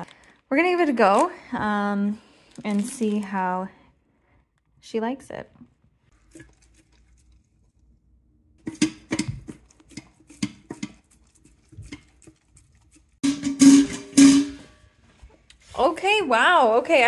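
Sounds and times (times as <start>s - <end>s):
dog chewing and licking: 6.2s - 7.9s, 9.2s - 13.2s.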